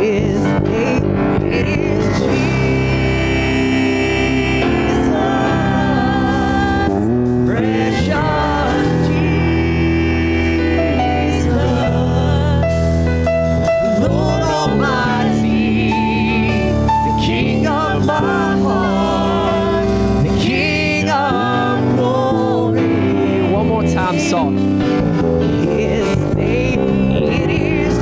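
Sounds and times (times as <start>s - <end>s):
worship band playing gospel song: 0.0s - 28.0s
person singing long notes: 13.8s - 24.2s, 25.5s - 28.0s.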